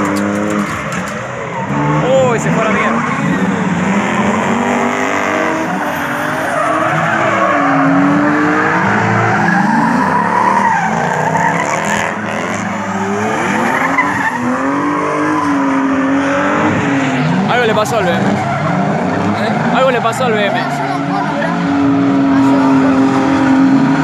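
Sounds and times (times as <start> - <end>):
car engines revving: 0.0 - 24.0
tyres screeching: 17.3 - 23.8.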